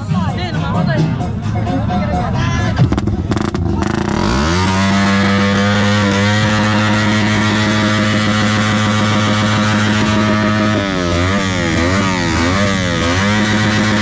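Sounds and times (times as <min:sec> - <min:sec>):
engine revving: 0:02.7 - 0:14.0.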